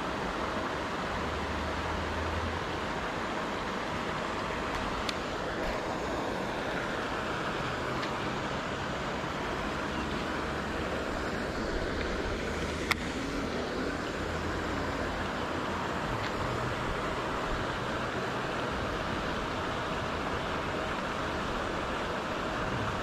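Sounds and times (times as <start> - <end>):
rushing water: 0.0 - 23.0
wind: 0.0 - 23.0
distant aerators splashing: 0.8 - 23.0.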